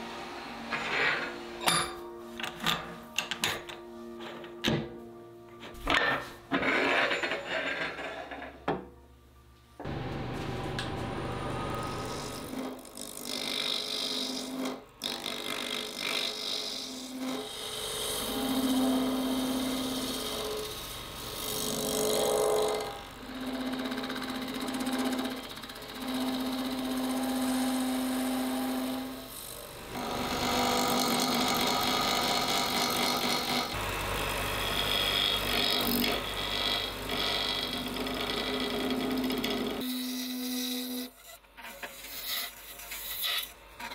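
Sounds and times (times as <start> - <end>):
chisel cutting wood on lathe: 10.8 - 43.9.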